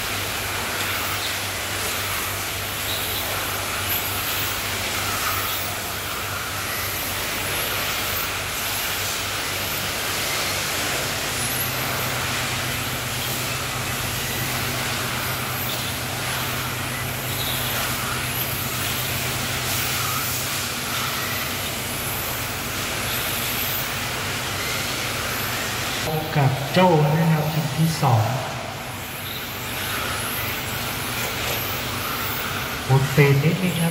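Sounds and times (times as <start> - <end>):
tyre and track hiss: 0.0 - 33.9
electric motor whines: 3.8 - 26.1.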